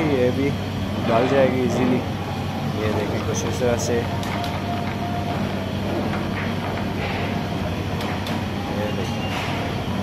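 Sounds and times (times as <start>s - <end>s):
gas burner rumbling: 0.0s - 10.0s.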